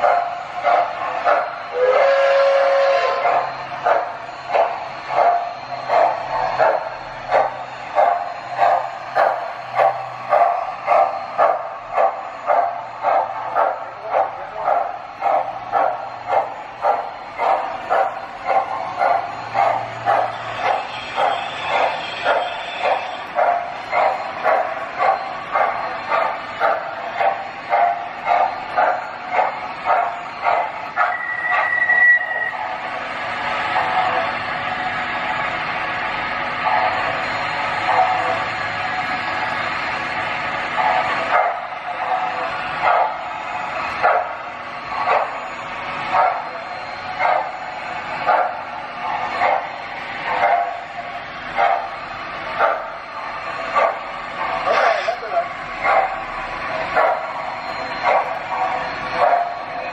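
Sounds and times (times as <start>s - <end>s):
dog barking: 0.0s - 1.6s, 3.2s - 31.7s, 40.8s - 43.3s, 44.0s - 44.4s, 45.0s - 45.4s, 46.1s - 46.6s, 47.2s - 47.6s, 48.2s - 50.9s, 51.6s - 52.0s, 52.6s - 53.0s, 53.7s - 56.2s, 56.9s - 57.4s, 59.2s - 59.6s
model steam locomotive chuffing: 0.0s - 59.9s.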